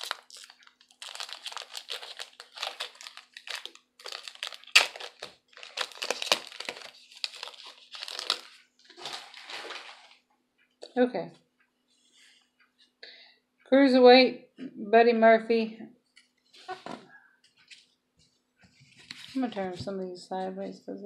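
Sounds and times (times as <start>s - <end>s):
trading cards rustling: 0.0s - 10.2s.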